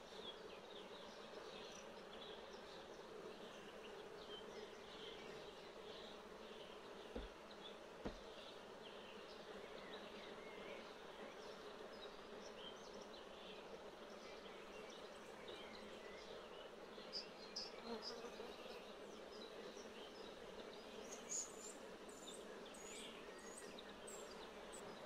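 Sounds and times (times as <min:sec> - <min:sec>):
hive tool knocking on wood: 0:07.1 - 0:07.4, 0:08.0 - 0:08.3.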